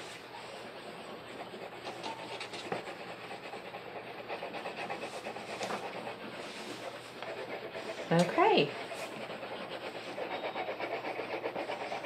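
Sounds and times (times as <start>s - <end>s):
crayon scratching on paper: 0.0s - 12.0s.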